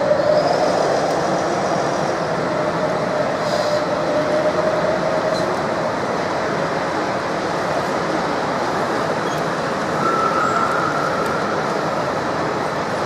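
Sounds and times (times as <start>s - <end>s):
exhibition hall din: 0.0s - 13.0s.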